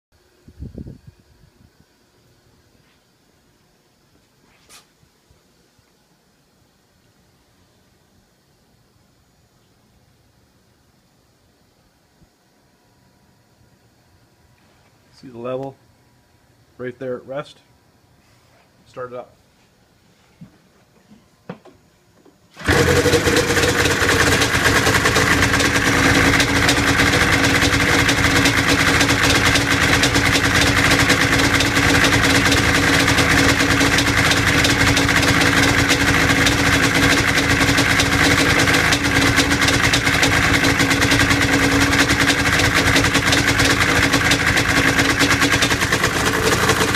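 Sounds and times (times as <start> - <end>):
snowmobile engine starting: 22.5 - 46.9
snowmobile engine idling: 22.6 - 46.9.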